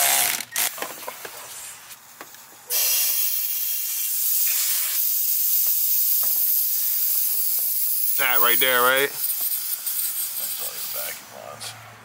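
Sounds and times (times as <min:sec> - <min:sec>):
rushing air hiss: 0:02.7 - 0:11.8.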